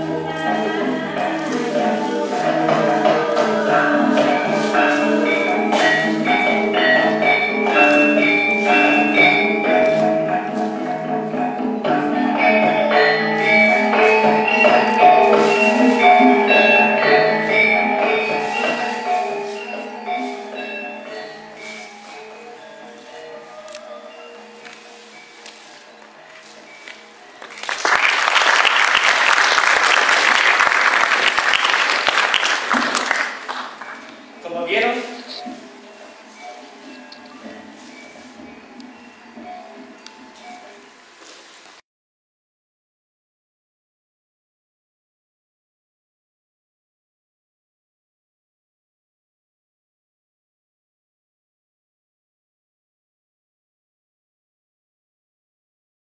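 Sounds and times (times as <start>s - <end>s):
gamelan metallophones and gongs: 0.0s - 27.4s
audience applauding: 27.4s - 34.1s.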